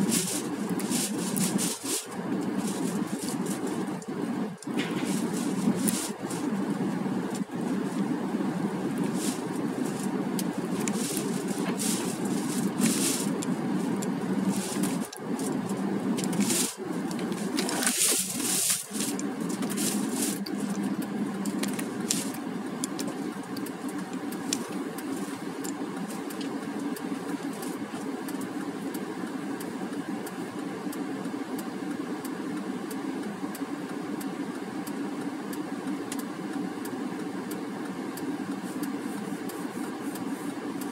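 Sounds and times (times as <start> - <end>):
loud hiss: 0.0 - 26.4
car engine and road noise: 0.0 - 40.9
car engine idling: 0.0 - 40.9.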